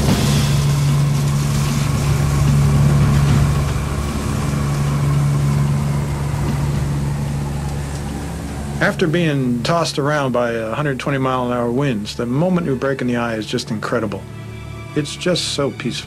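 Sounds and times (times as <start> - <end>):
turboprop engines droning: 0.0 - 16.0.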